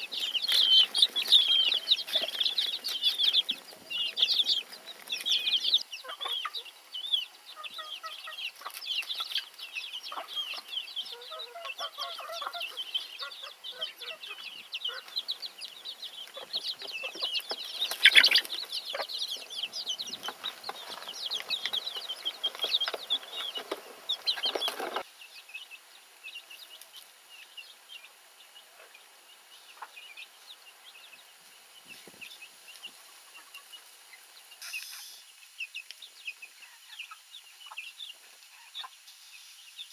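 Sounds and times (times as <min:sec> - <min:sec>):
hens clucking: 0:00.0 - 0:25.1
chicks peeping: 0:00.0 - 0:39.9.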